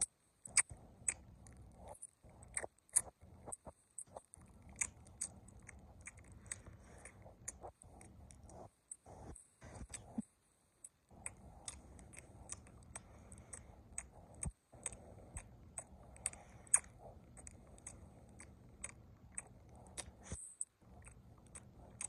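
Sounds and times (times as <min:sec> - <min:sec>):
faint low rumble: 0:00.0 - 0:22.0.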